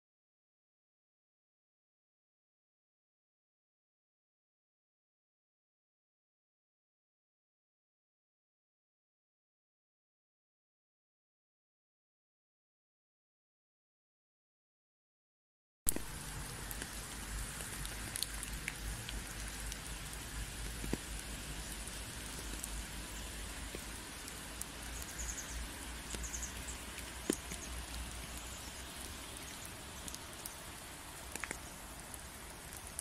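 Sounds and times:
water drops falling on leaves: 0:15.9 - 0:33.0.

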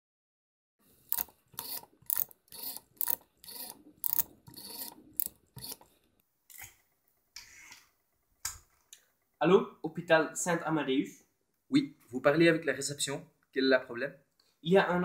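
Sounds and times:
rotary phone dial whirring: 0:01.0 - 0:05.9.

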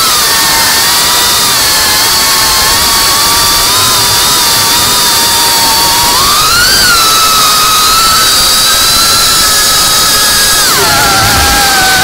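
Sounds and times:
drone motors whining: 0:00.0 - 0:12.0
rushing air: 0:00.1 - 0:12.0.

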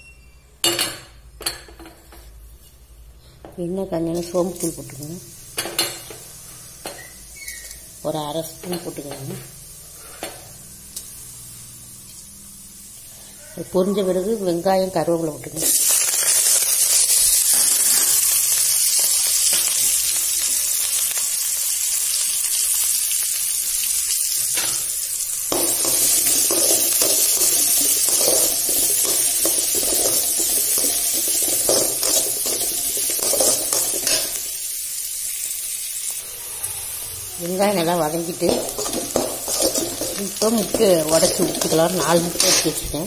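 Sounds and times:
onions sizzling in hot oil: 0:03.9 - 0:43.0
spatula stirring and scraping pan: 0:25.5 - 0:34.5, 0:37.8 - 0:42.9.

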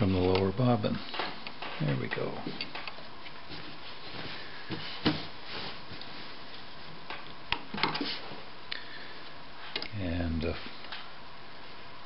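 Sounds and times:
cloth rustling: 0:01.6 - 0:07.1.

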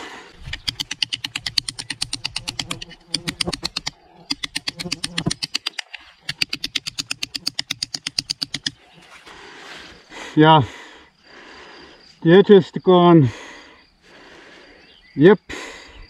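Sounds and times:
knife rasping on brick: 0:00.4 - 0:08.7.

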